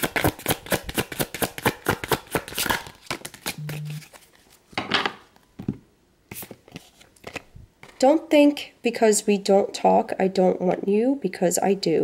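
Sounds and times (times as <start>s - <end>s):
cards being shuffled: 0.0s - 4.6s, 6.3s - 8.0s
cards rustling: 0.1s - 4.6s, 6.3s - 8.0s.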